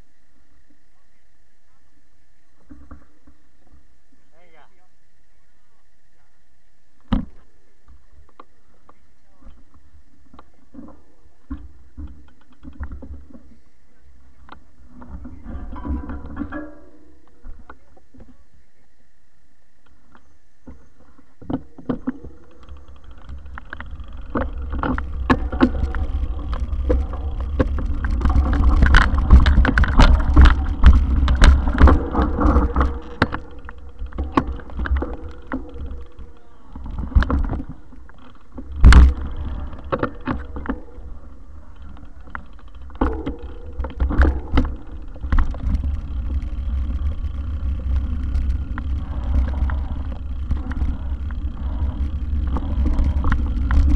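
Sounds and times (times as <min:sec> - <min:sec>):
bike rattling and knocking: 0:21.5 - 0:53.9.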